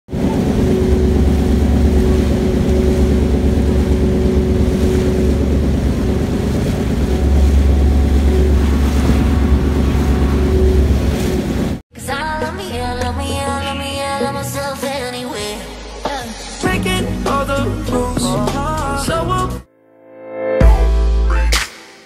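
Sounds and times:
ship engine humming: 0.1 - 11.8
water rushing past hull: 0.1 - 11.8
wind buffeting microphone: 0.1 - 11.8.

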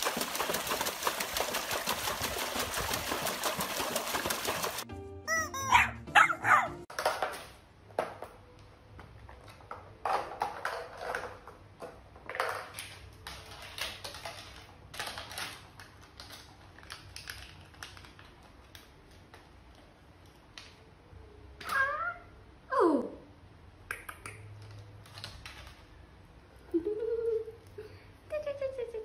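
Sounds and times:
rubber chicken toy squawking: 5.3 - 6.8
puppy playing on tiled floor: 6.2 - 20.7, 24.1 - 26.3.

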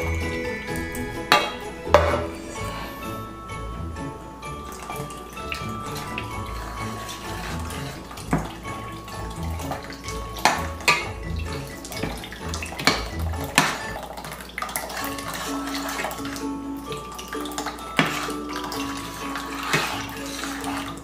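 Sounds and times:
milk pouring: 0.0 - 21.0
metal spoon scraping a pot: 5.8 - 14.0, 14.8 - 16.4, 18.0 - 21.0.

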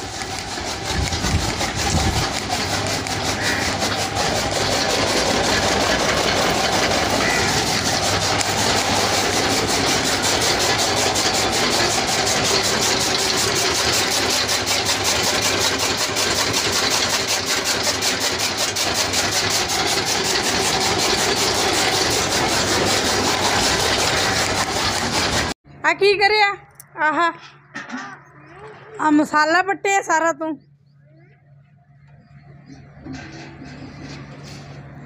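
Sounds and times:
chaff cutter whirring and chopping: 0.0 - 25.6.

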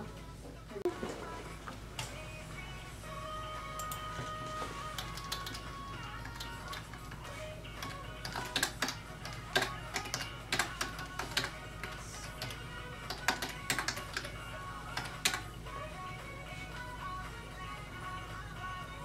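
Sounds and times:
music playing: 0.0 - 19.0
keyboard keys clicking: 5.0 - 7.2, 7.8 - 15.5.

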